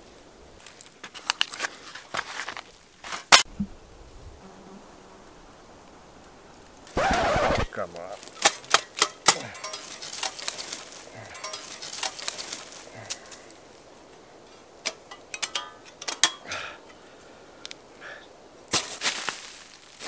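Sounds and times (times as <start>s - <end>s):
metal panels clanking together: 8.4s - 12.6s, 14.9s - 16.5s.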